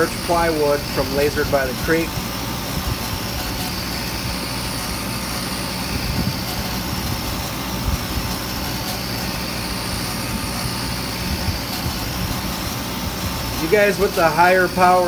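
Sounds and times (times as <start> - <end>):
laser engraver droning: 0.0 - 15.0.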